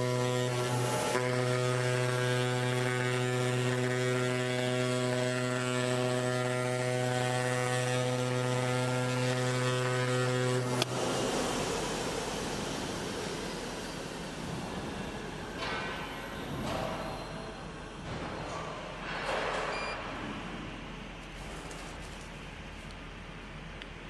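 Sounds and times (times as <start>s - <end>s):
oscillating knife buzzing hum: 0.0s - 10.9s.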